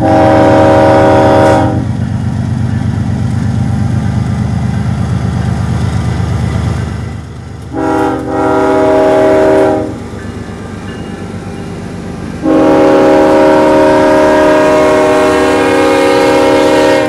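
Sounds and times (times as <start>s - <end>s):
train air horn: 0.0s - 1.9s, 7.7s - 10.0s, 12.4s - 17.0s
freight train rumbling past: 0.0s - 17.0s.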